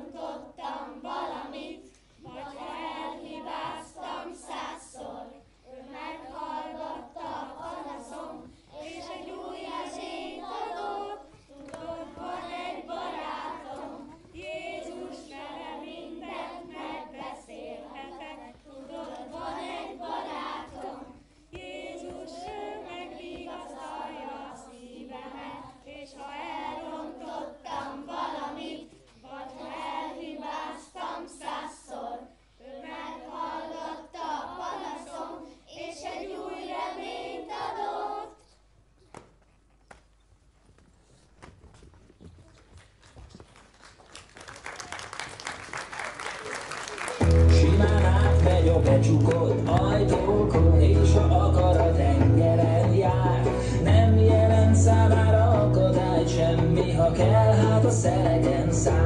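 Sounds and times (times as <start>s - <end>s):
children singing: 0.0s - 38.4s.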